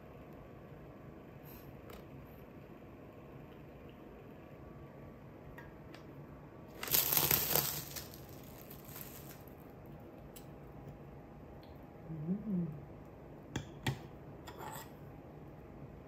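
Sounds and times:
food packaging crinkling: 6.7s - 9.6s.

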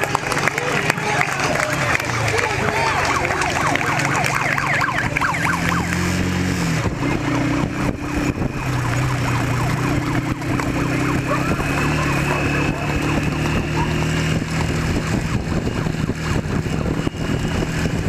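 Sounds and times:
vehicle engine running: 0.0s - 18.0s
siren wailing: 1.7s - 6.4s, 7.0s - 18.0s.

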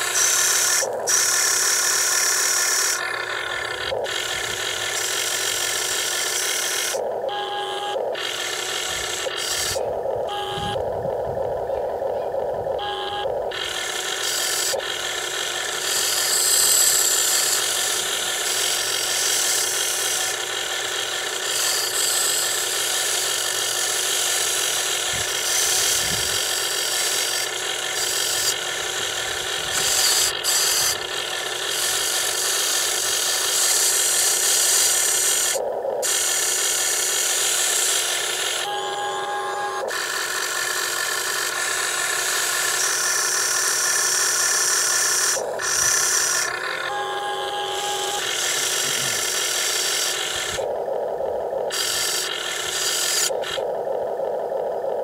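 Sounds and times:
small electric motors whirring: 0.0s - 55.0s.

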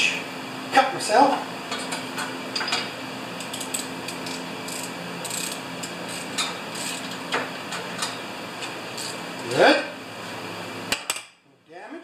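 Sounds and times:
ratchet wrench clicking: 3.4s - 7.0s.

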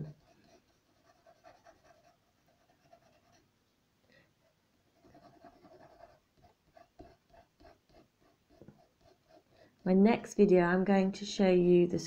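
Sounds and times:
pencil shading on paper: 0.0s - 3.4s, 5.0s - 9.9s.

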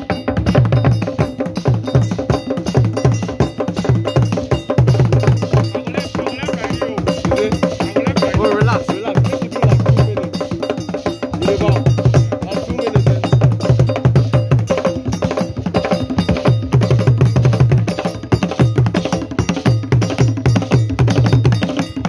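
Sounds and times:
traditional drum ensemble: 0.0s - 22.0s.

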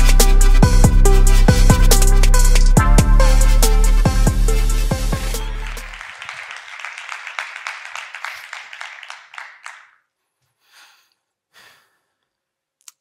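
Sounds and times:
audience applauding: 5.3s - 10.0s.

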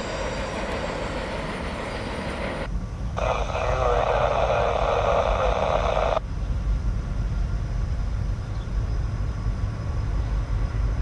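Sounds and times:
train rumbling: 0.0s - 3.7s, 6.2s - 11.0s.

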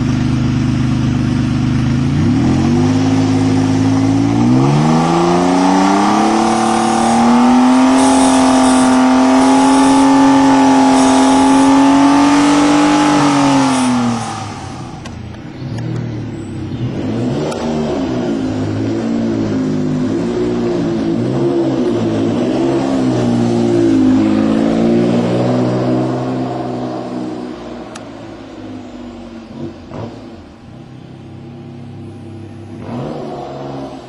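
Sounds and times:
car engine revving: 0.0s - 34.0s.

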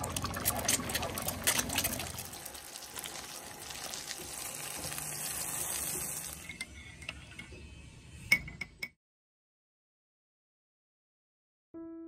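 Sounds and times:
water running and splashing: 0.0s - 6.4s.

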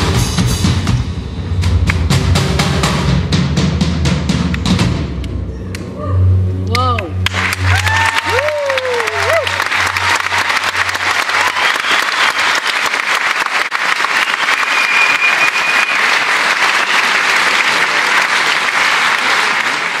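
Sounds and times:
audience applauding: 7.2s - 20.0s
whistle from crowd: 11.4s - 12.7s, 14.1s - 17.4s.

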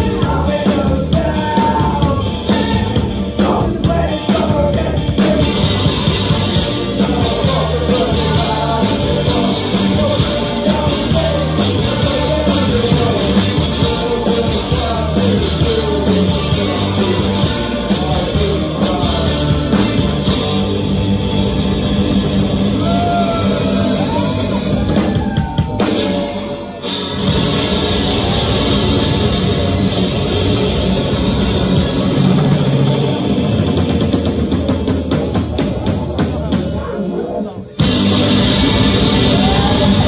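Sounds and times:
person singing: 0.0s - 20.6s, 38.6s - 40.0s
bass guitar: 0.0s - 40.0s
distorted electric guitars: 0.0s - 40.0s
pounding drum kit: 0.0s - 40.0s.

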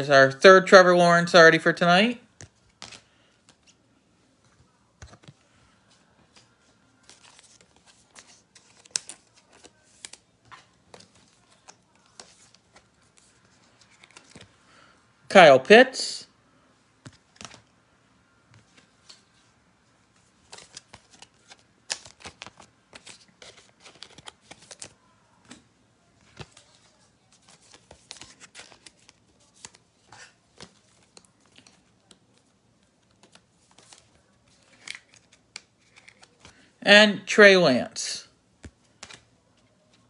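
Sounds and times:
trading cards clicking and rustling: 2.3s - 3.8s, 4.9s - 14.6s, 17.0s - 17.7s, 20.4s - 36.7s, 38.6s - 40.0s.

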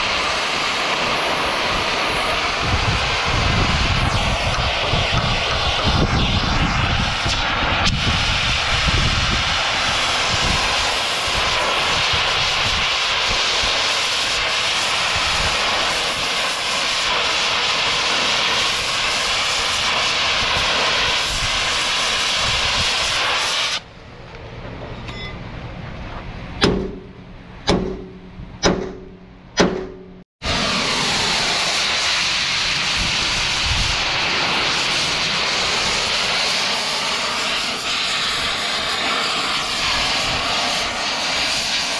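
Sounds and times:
cutting torch hissing: 0.0s - 23.9s, 30.4s - 41.9s
sharp metallic strikes: 26.6s - 30.2s.

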